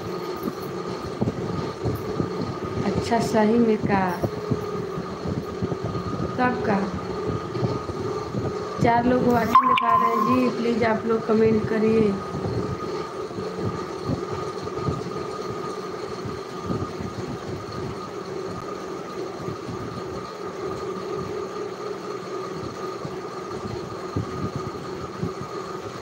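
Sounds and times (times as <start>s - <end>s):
mechanical hum: 0.0s - 26.0s
held tones: 9.3s - 10.6s.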